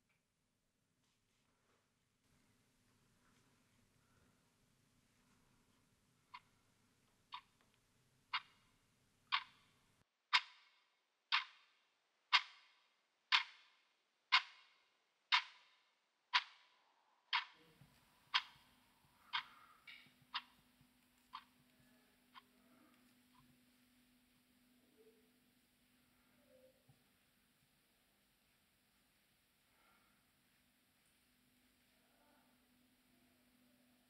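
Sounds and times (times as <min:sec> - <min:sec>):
clock ticking: 0:09.3 - 0:09.6, 0:10.3 - 0:10.7, 0:11.3 - 0:11.7, 0:12.3 - 0:12.7, 0:13.3 - 0:13.7, 0:14.3 - 0:17.7, 0:18.3 - 0:21.6.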